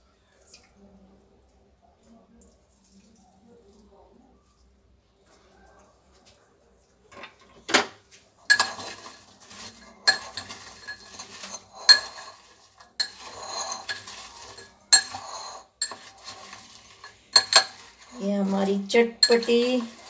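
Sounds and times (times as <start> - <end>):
food rustling: 2.5 - 20.0
spoon clinking on ceramic bowl: 8.5 - 18.3, 19.0 - 20.0.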